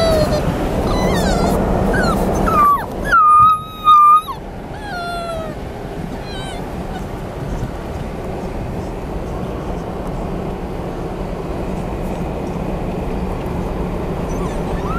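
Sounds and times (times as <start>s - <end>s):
dog whining: 0.0s - 7.2s, 14.2s - 14.9s
car cabin road noise: 0.0s - 14.9s.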